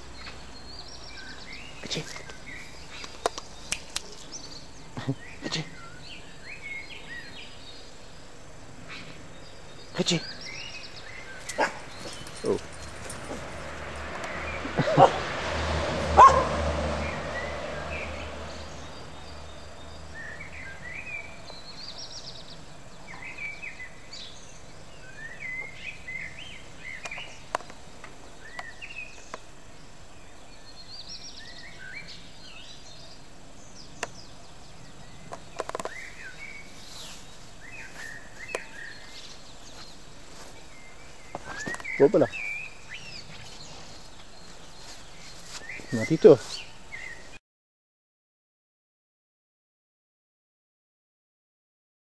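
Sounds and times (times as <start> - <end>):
songbirds chirping: 0.0 - 47.4
dog barking: 11.5 - 11.9, 14.8 - 15.2, 16.1 - 16.6.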